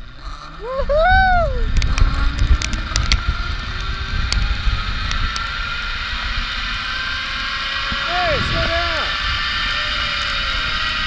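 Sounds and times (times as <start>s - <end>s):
wind buffeting microphone: 0.0s - 11.0s
pulleys whirring on cable: 1.6s - 11.0s
sharp clicks: 1.7s - 5.5s.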